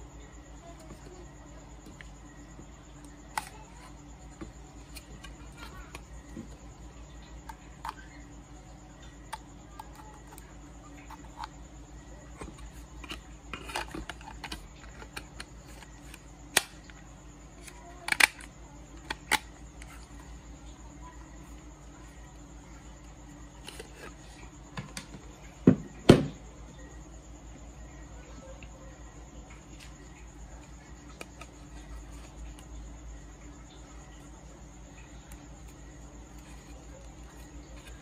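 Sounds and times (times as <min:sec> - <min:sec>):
faint steady hum: 0:00.0 - 0:38.0
plastic pump housing clicks: 0:18.1 - 0:19.9.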